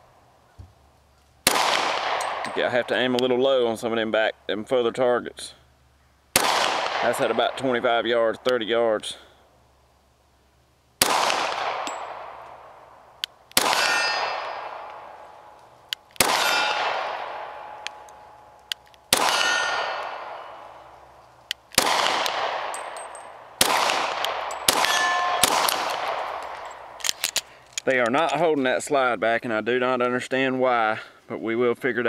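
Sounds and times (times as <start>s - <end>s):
pistol shots: 1.4s - 2.7s, 6.3s - 7.9s, 11.0s - 12.7s, 13.5s - 15.6s, 16.2s - 20.9s, 21.7s - 27.6s
steel target plates ringing: 13.7s - 15.6s, 19.3s - 20.8s, 22.7s - 23.4s, 24.3s - 26.9s.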